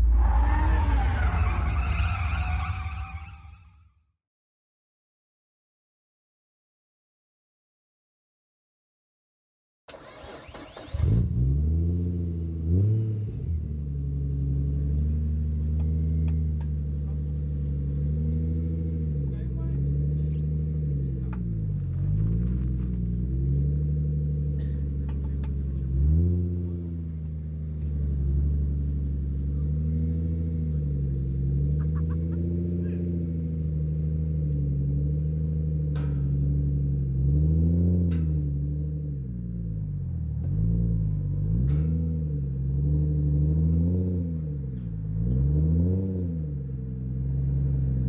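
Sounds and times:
car engine revving: 9.9 - 48.0.

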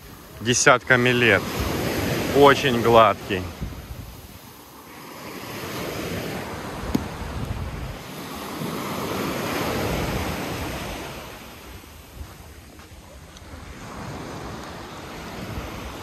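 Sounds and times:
small waves breaking on beach: 0.0 - 16.0
wind buffeting microphone: 3.4 - 4.5, 5.8 - 16.0.

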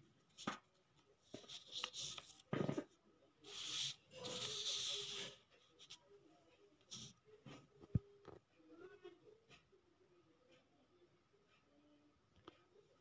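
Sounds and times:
paper rustling and sliding: 3.5 - 5.4.

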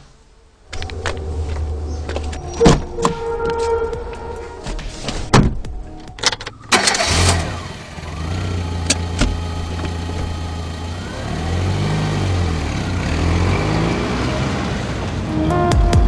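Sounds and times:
car engine cranking and idling: 5.6 - 15.2.

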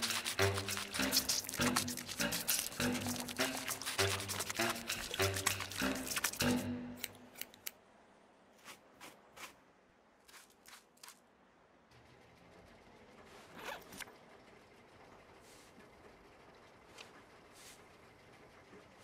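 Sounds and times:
brush scratching through dog fur: 0.0 - 6.6
music: 0.0 - 7.1.

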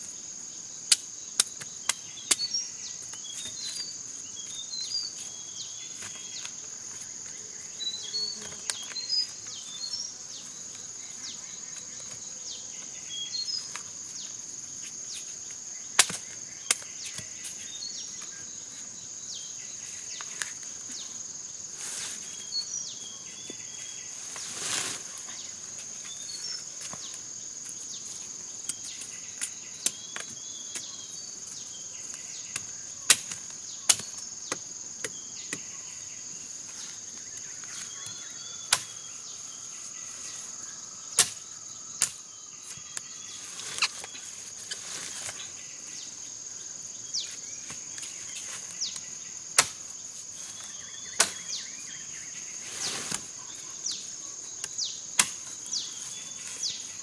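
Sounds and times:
insects droning: 0.0 - 57.0
machete chopping: 41.2 - 41.4, 49.6 - 49.8, 51.2 - 51.4, 55.2 - 55.5.

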